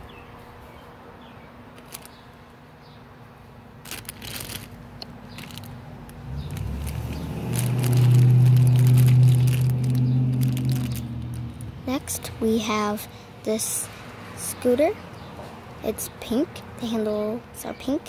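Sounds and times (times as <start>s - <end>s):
low steady hum: 0.0s - 14.8s
plastic bag crinkling: 1.8s - 2.2s, 3.8s - 11.7s.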